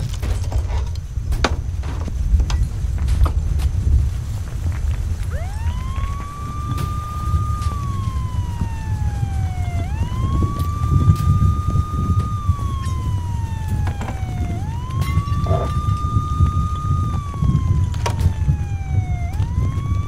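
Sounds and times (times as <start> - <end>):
steady low rumble: 0.0 - 20.0
emergency siren wailing: 5.1 - 20.0.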